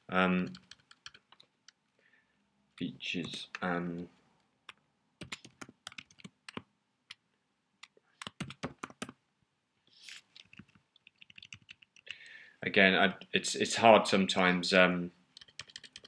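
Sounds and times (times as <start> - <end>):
typing on computer keyboard: 0.5 - 1.5, 5.2 - 6.6, 8.2 - 9.2, 10.4 - 12.2, 15.4 - 16.0.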